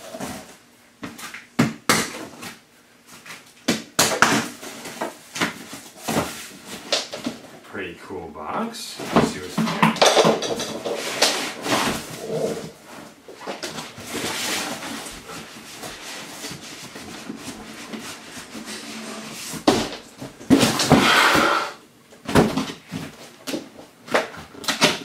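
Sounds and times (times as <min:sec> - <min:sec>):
cardboard rustling: 0:09.0 - 0:21.1
cardboard scraping on cardboard: 0:10.8 - 0:13.2, 0:14.0 - 0:19.7, 0:20.5 - 0:21.8.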